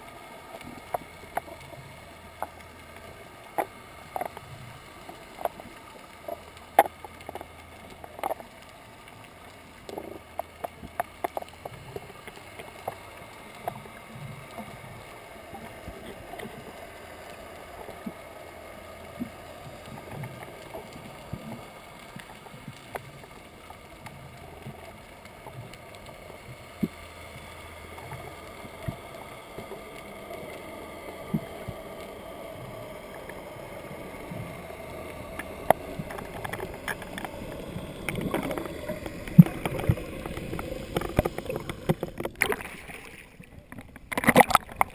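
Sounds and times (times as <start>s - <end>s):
muffled underwater hiss: 0.0s - 44.9s
sharp underwater clicks and knocks: 0.5s - 14.9s, 34.3s - 44.9s.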